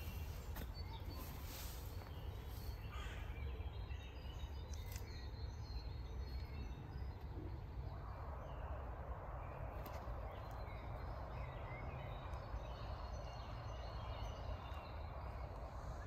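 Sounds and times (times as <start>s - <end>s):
bird calls: 0.0s - 7.6s.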